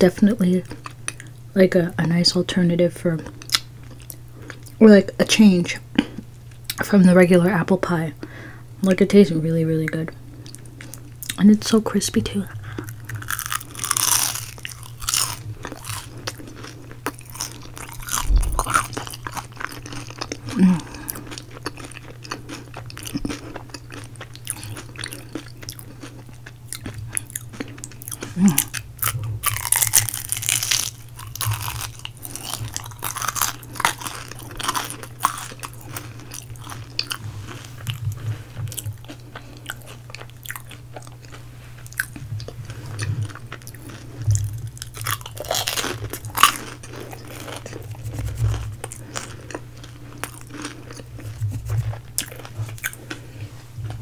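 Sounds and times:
steady low hum: 0.0 - 54.0
crackly chewing: 0.6 - 1.4, 3.1 - 4.9, 9.8 - 11.8, 12.4 - 54.0
crunching bites of pastry crust: 12.8 - 38.1, 38.7 - 53.2.

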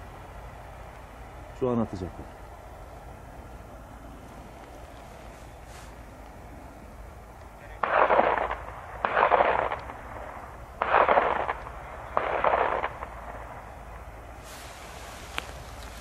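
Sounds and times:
sharp bangs with rolling echo: 7.8 - 13.7.

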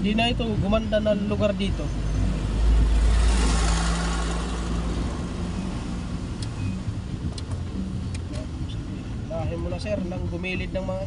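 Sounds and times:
car running: 0.0 - 11.0
traffic: 0.0 - 11.0
large truck passing: 2.0 - 8.0.

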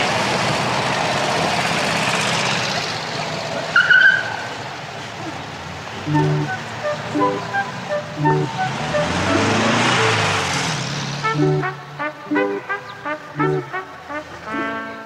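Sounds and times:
car driving past: 5.4 - 14.5
music notes: 6.0 - 15.0
short high tone: 6.1 - 10.2.

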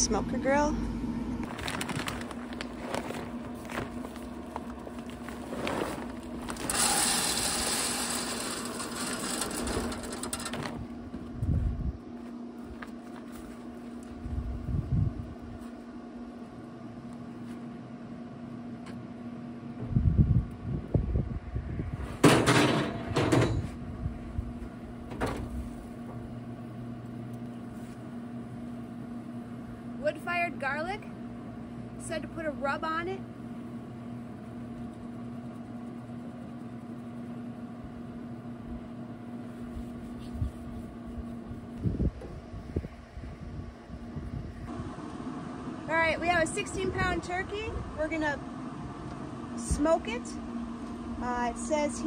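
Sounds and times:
smoker humming: 0.0 - 52.0
pellets pouring into hopper: 1.5 - 4.2, 5.0 - 10.7
plastic bag crinkling: 1.5 - 6.7
metal grill grates clattering: 5.5 - 10.8.

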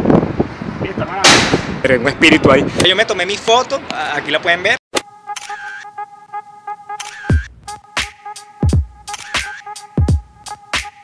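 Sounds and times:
sharp snare hits: 1.2 - 1.8.

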